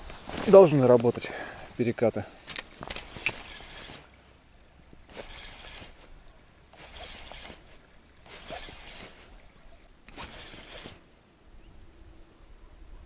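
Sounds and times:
spinning reel cranking: 2.9s - 4.1s, 5.1s - 6.0s, 6.8s - 9.2s, 10.1s - 11.0s.

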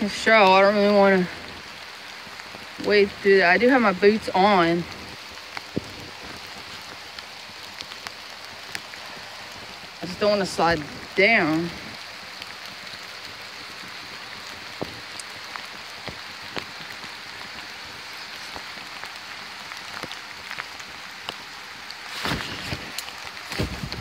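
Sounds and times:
creek rushing: 0.0s - 24.0s
rain drop taps: 0.0s - 24.0s
steady rain falling: 0.0s - 24.0s
loud rustle: 22.0s - 24.0s.

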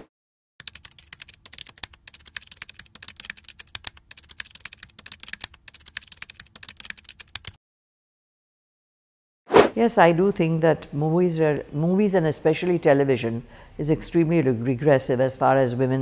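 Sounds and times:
keyboard typing clicks: 0.6s - 7.6s.

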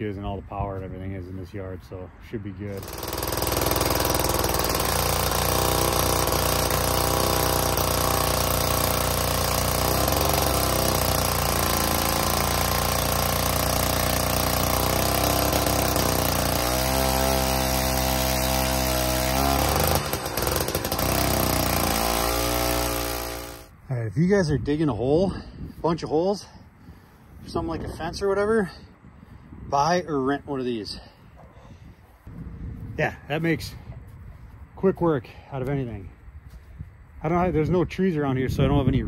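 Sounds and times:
earth auger engine boring: 2.8s - 23.7s.

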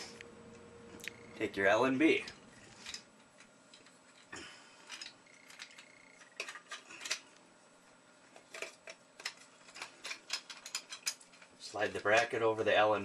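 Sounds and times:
bracket handling clicks and knocks: 8.4s - 11.5s.

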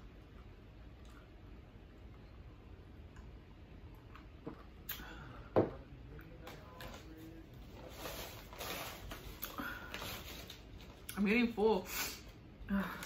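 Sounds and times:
chewing and swallowing food: 0.0s - 5.0s.

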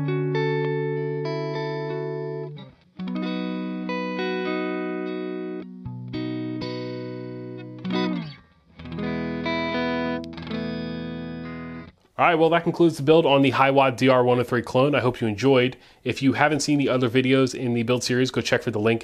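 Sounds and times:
electric guitar chords: 0.0s - 12.0s.

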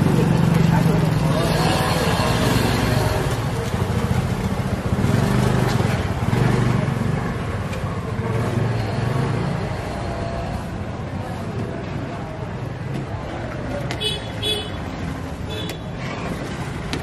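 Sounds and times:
road traffic noise: 0.0s - 17.0s.

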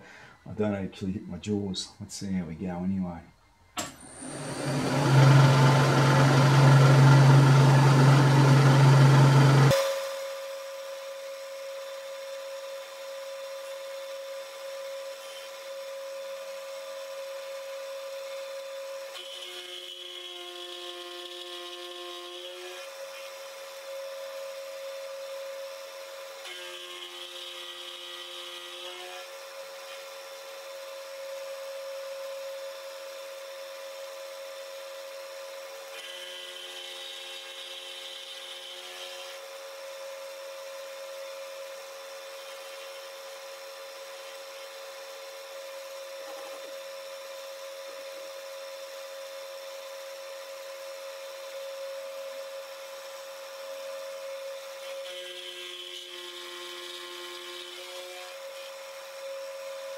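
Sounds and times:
milling machine whine: 3.7s - 10.7s.

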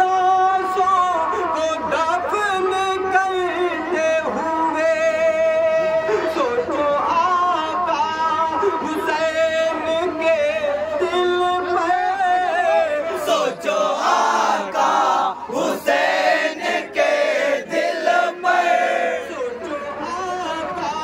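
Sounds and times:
men singing: 0.0s - 21.0s
group chanting: 13.1s - 19.4s.

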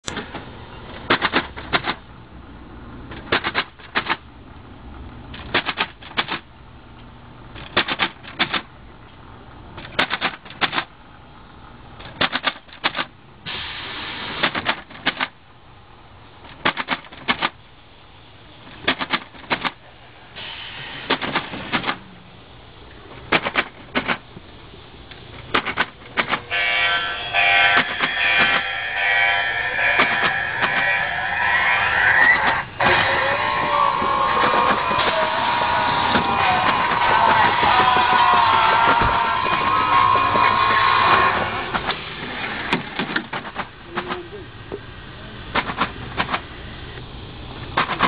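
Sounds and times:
rushing hiss: 13.4s - 14.6s, 20.1s - 21.7s
rhythmic sharp clacks: 27.4s - 28.8s, 29.8s - 31.1s, 33.6s - 42.0s.

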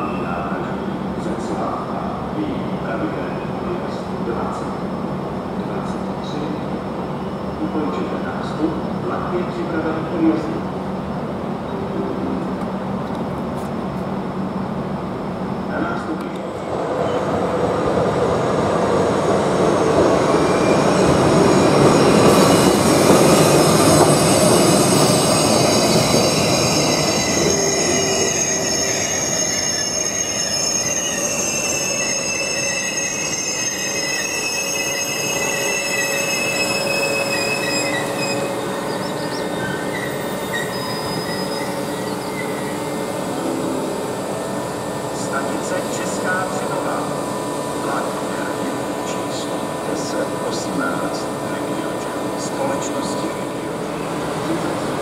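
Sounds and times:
train wheels rumbling on rail: 12.4s - 55.0s
wheel and brake squeal: 23.4s - 43.0s.

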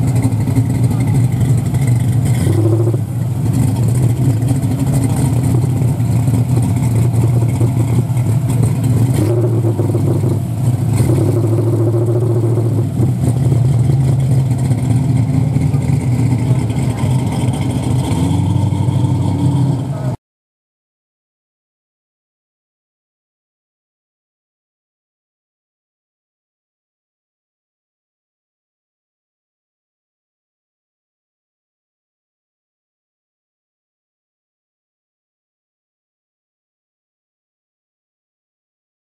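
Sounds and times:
car engine at low revs: 0.0s - 20.2s
second car engine rolling up: 0.0s - 20.2s.

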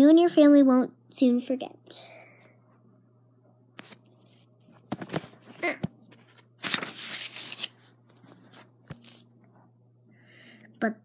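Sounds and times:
book page turning: 3.8s - 9.3s
paper taps and rustles: 4.8s - 9.2s.

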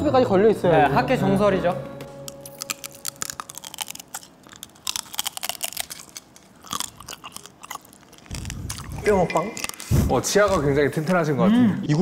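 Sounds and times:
shell crackling between teeth: 2.2s - 11.1s
crunching and chewing crab: 2.3s - 10.8s.

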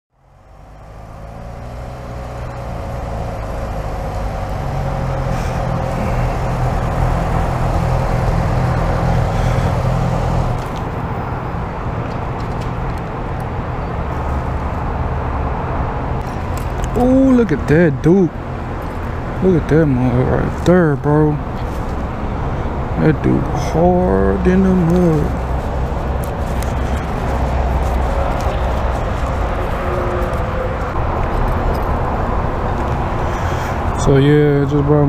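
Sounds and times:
motorcycle engine running: 1.6s - 10.7s.

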